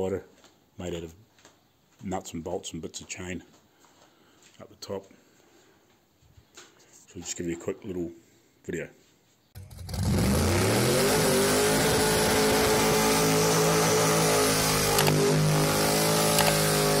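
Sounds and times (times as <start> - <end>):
car engine revving: 9.6 - 17.0.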